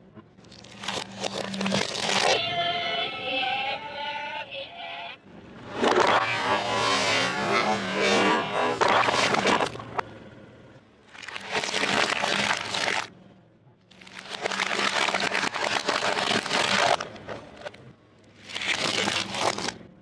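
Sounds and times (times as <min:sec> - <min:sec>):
plastic toys crunching under tyre: 0:00.4 - 0:02.4, 0:08.8 - 0:10.1, 0:11.1 - 0:13.1, 0:13.9 - 0:19.9.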